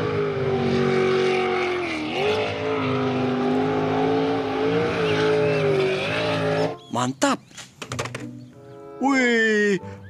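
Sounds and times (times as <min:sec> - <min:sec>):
boat engine running at high revs: 0:00.0 - 0:06.8.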